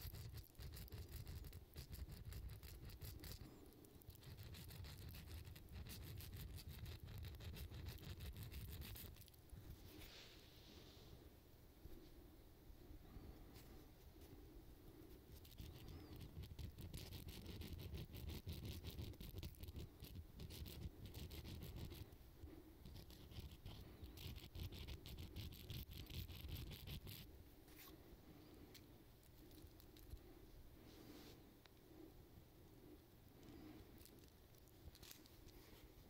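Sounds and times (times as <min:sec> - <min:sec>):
faint handling sounds: 0:09.0 - 0:16.3, 0:27.2 - 0:36.0.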